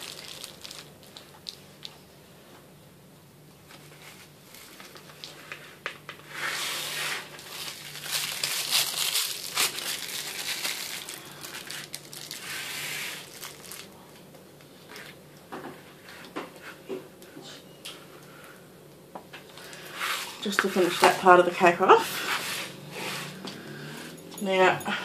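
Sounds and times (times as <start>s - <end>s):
plastic bag crinkling: 0.0s - 2.0s, 6.2s - 15.2s.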